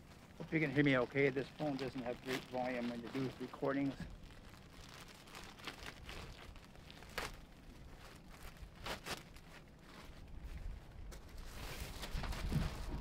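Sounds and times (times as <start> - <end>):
faint background hiss: 0.0 - 11.4.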